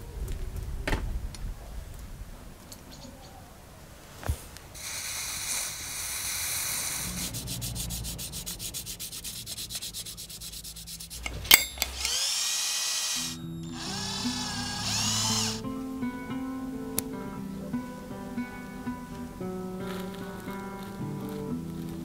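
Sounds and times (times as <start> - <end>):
drill whirring: 4.8 - 7.4, 11.2 - 15.6
sandpaper scraping metal: 4.8 - 11.6
guitar music: 13.4 - 22.0.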